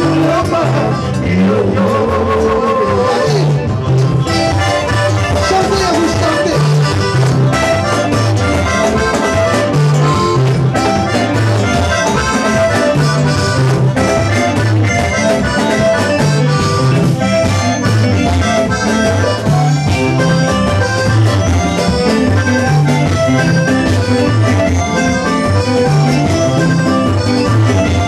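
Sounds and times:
live gospel band playing: 0:00.0 - 0:28.0.

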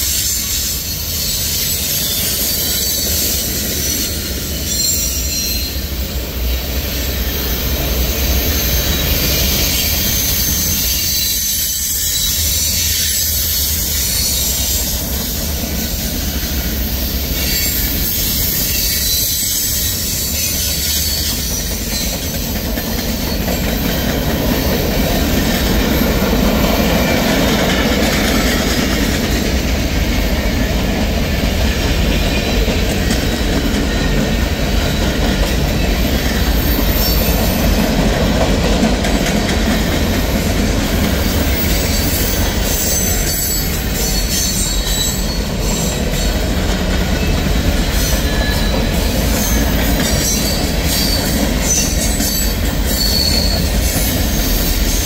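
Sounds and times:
high-pitched wheel squeal: 0:00.0 - 0:06.1, 0:08.1 - 0:15.5, 0:17.3 - 0:22.4, 0:34.9 - 0:37.8, 0:41.2 - 0:46.4, 0:47.2 - 0:55.0
train wheels rumbling on rail: 0:00.0 - 0:55.0.

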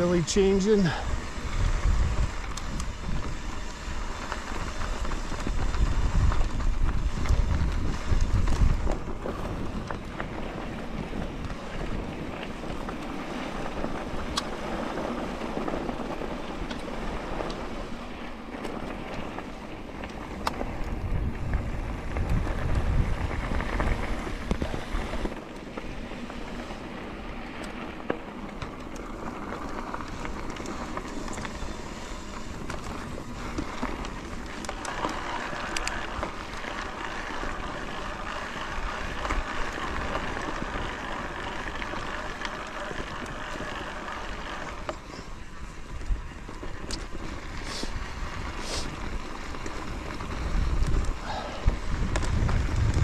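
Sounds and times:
wind buffeting microphone: 0:00.0 - 0:18.1, 0:19.2 - 0:25.4, 0:29.6 - 0:53.0
steady rushing hiss: 0:00.0 - 0:53.0.

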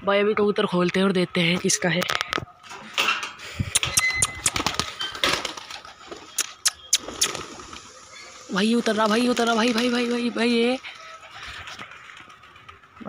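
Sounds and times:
pigeons' wings clapping: 0:03.8 - 0:13.0.

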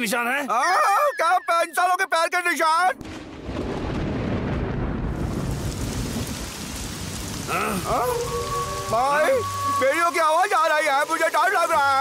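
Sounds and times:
thunder rumbling: 0:03.0 - 0:12.0
heavy rain hissing: 0:03.1 - 0:12.0.

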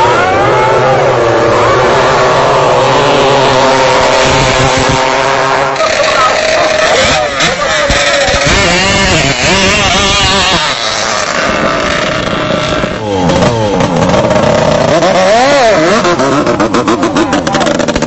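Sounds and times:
boat engines revving: 0:00.0 - 0:18.0.

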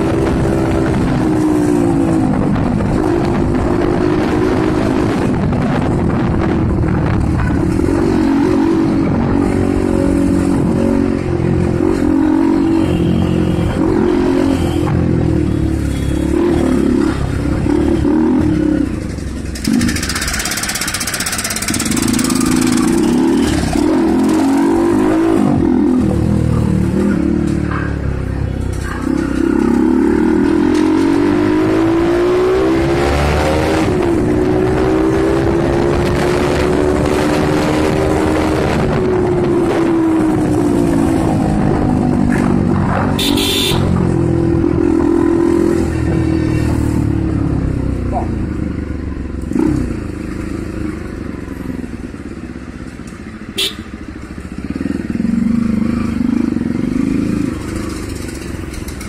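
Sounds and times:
vehicle engine running: 0:19.0 - 0:24.0.

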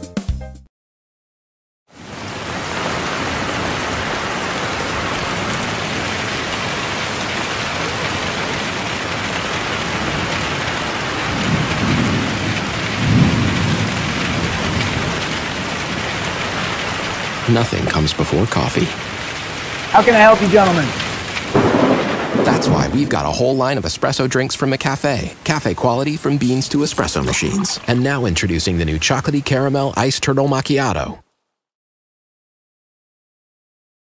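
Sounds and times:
steady rain: 0:01.9 - 0:31.1
thunder rumbling: 0:02.2 - 0:24.3.

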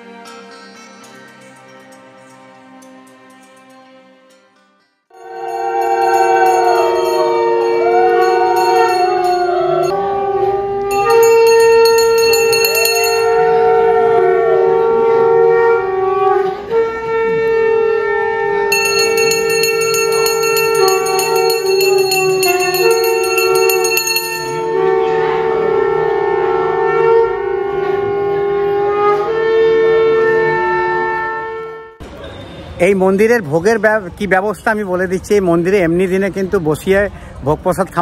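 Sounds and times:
conch shells blown: 0:05.1 - 0:32.0
hand bell ringing rapidly: 0:05.2 - 0:09.9, 0:10.9 - 0:13.4, 0:18.7 - 0:24.7.

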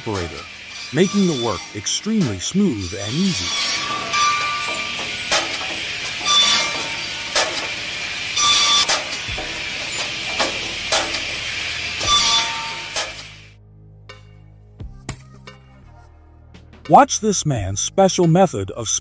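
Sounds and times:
disc cutting through wood: 0:00.0 - 0:13.5
firewood cutter droning: 0:00.0 - 0:13.6.

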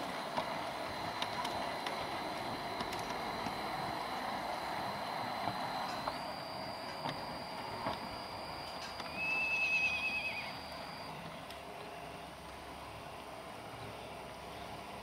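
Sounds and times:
thin high whine: 0:00.0 - 0:14.9
model train running on track: 0:00.0 - 0:15.0
wheel flanges squealing: 0:01.0 - 0:11.2.

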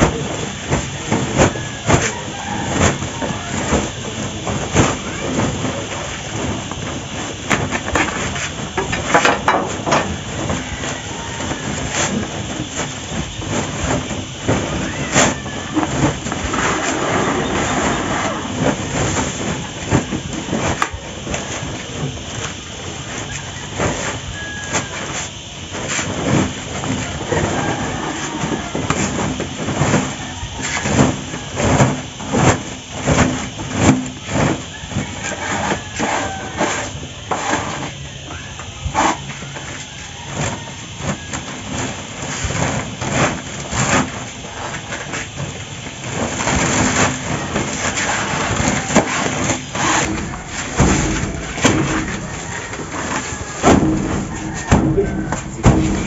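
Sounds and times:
plastic sack rustling: 0:00.0 - 0:56.0
twine pulls: 0:46.2 - 0:56.0.

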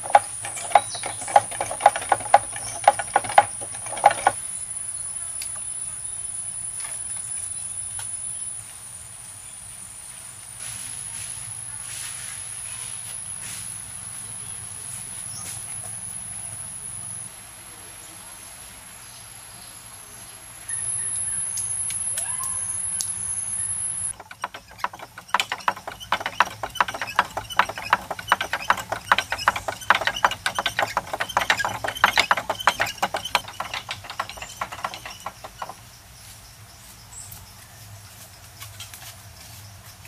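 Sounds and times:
wooden hammers knocking bamboo: 0:00.0 - 0:04.4, 0:24.1 - 0:35.9.

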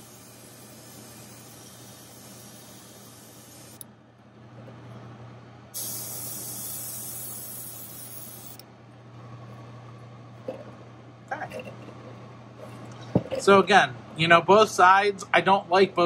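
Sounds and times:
airbrush spraying: 0:00.0 - 0:03.8, 0:05.8 - 0:08.6
steady low hum: 0:00.0 - 0:16.0.

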